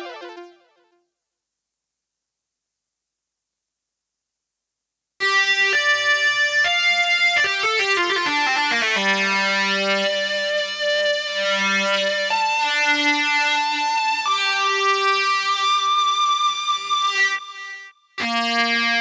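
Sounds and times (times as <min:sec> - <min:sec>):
synthesizer keyboard playing: 0:00.0 - 0:00.8.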